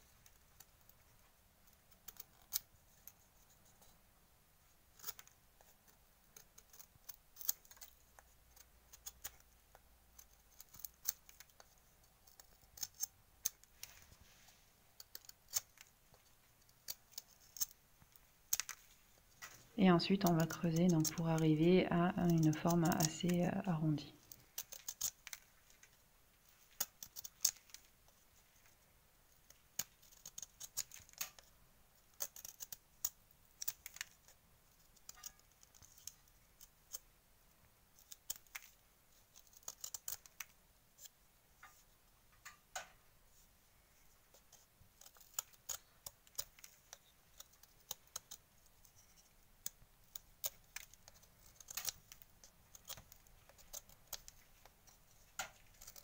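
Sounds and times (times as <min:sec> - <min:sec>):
knife scraping a dry reed: 0:50.1 - 0:56.0.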